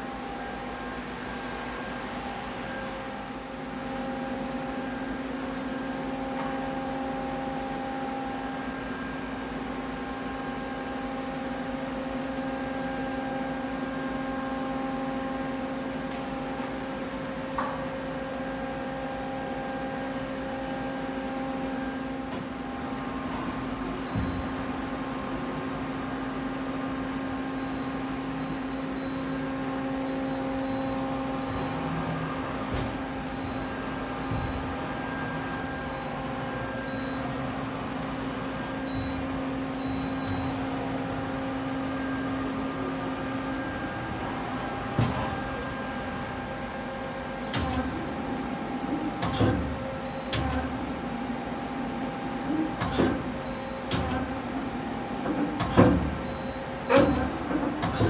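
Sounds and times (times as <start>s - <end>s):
machine humming at idle: 0.0s - 55.5s.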